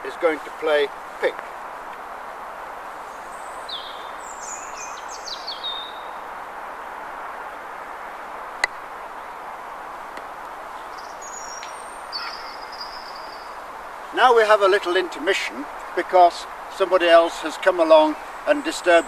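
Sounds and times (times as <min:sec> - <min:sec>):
small birds chirping: 0:02.9 - 0:06.4, 0:08.6 - 0:19.0.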